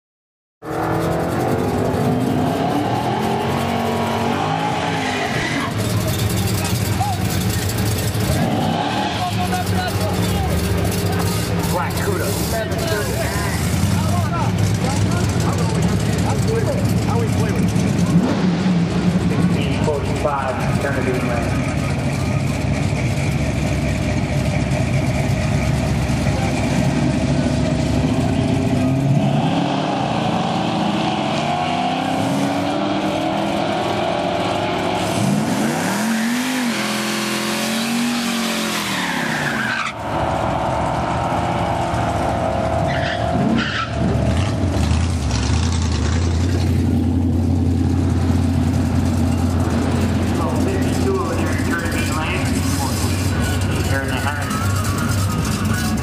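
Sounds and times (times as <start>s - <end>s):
car engine revving: 0.6s - 56.0s
tyres squealing on wet pavement: 35.9s - 40.1s, 42.8s - 44.3s, 50.4s - 56.0s.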